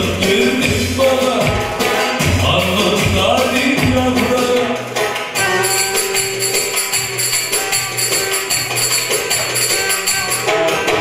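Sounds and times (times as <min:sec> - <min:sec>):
folk dance melody: 0:00.0 - 0:11.0
jingling percussion: 0:00.0 - 0:11.0.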